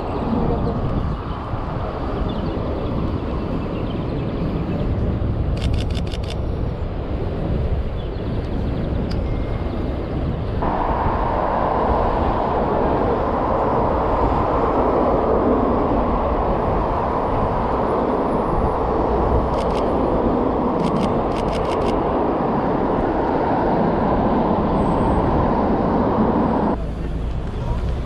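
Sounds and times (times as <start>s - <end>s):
city street traffic: 0.0s - 28.0s
camera shutter clicks: 5.6s - 6.4s.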